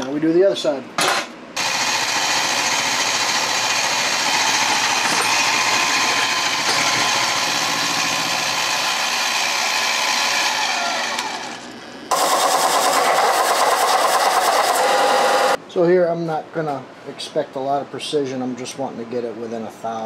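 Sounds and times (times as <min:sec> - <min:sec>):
milling machine cutting steel: 0:01.6 - 0:15.6.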